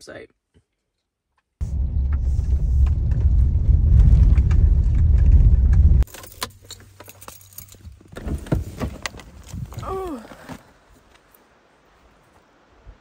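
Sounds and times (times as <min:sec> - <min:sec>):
tyres rumbling on dirt road: 0:01.6 - 0:07.0.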